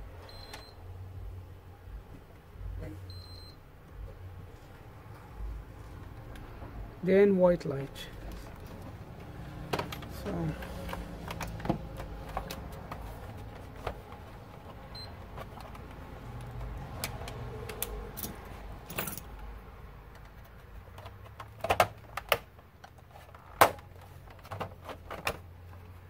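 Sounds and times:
plastic clicks and scraping: 8.3s - 18.2s, 20.1s - 26.0s.

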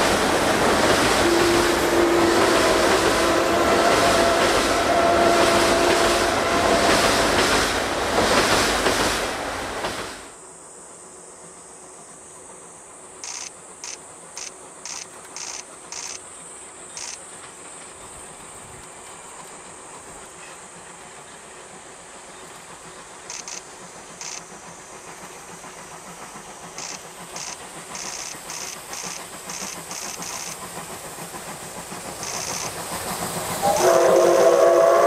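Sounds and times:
distant locomotive hiss: 0.0s - 35.0s
steam locomotive exhaust beats: 0.0s - 35.0s
steam whistle: 1.1s - 7.3s, 33.6s - 35.0s.

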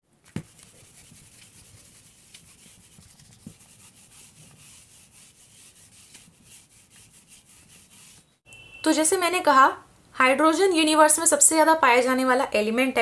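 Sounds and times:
pen writing scratchily: 0.3s - 8.2s.

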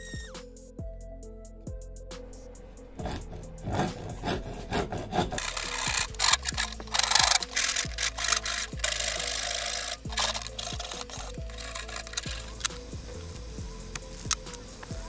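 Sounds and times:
hand file rasping in wood: 3.0s - 12.7s.

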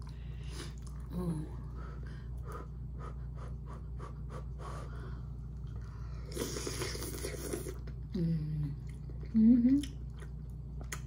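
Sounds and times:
slurping noodles: 6.2s - 8.0s.

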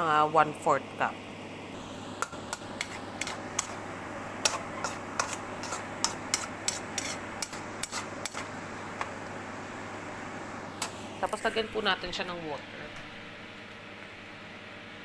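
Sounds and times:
mushrooms sizzling in a pan: 1.7s - 11.8s
spatula scraping a pan: 2.2s - 8.6s.

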